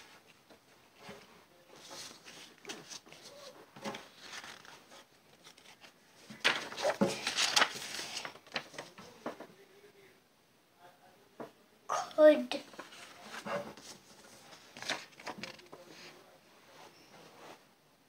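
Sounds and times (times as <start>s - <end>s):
paper card rustling and crinkling: 1.0s - 9.4s, 12.6s - 16.2s.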